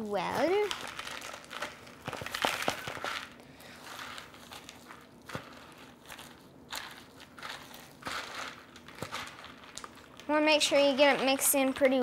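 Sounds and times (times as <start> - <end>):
lettuce and croutons being tossed: 0.3 - 12.0.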